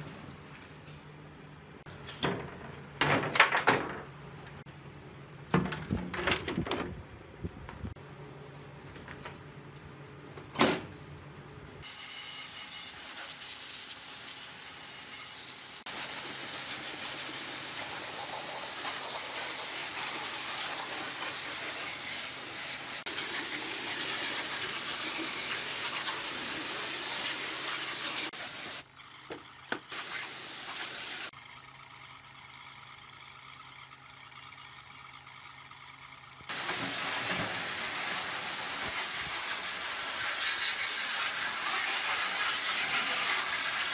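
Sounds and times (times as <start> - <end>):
pressure washer spraying water: 11.8 - 28.8, 29.9 - 31.3, 36.5 - 43.9.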